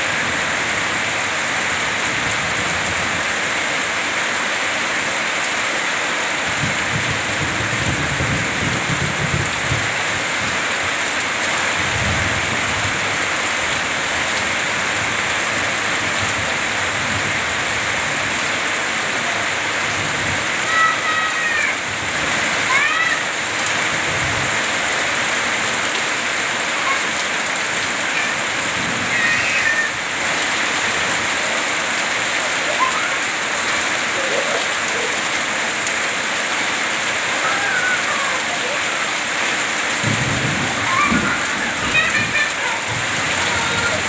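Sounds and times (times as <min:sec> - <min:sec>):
heavy rain falling: 0:00.0 - 0:44.0
water pouring off roof edge: 0:00.2 - 0:44.0
low thunder rumbling: 0:40.0 - 0:44.0.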